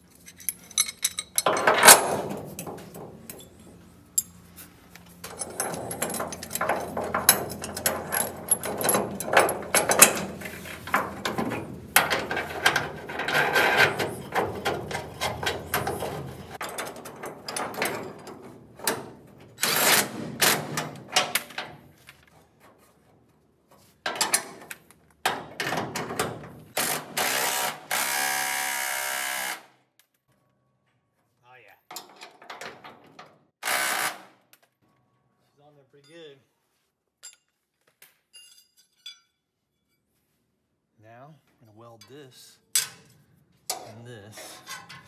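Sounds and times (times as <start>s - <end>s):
metallic clicking and clattering: 5.2s - 22.2s
impact driver whirring: 26.8s - 29.7s.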